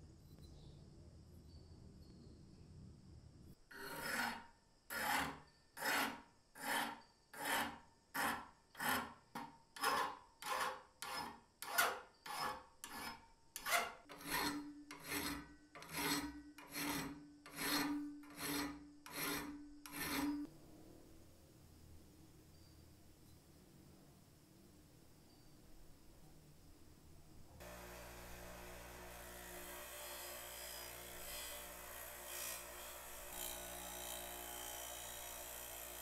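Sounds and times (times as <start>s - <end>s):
file rasping on steel: 3.7s - 20.5s, 27.6s - 36.0s
faint steady ring: 22.3s - 23.9s.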